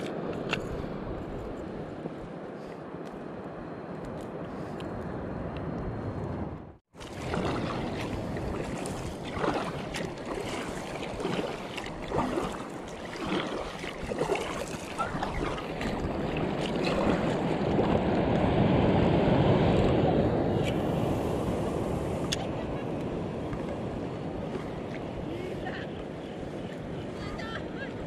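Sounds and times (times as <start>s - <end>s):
wind noise: 0.0s - 28.0s
water splashing: 6.9s - 18.2s.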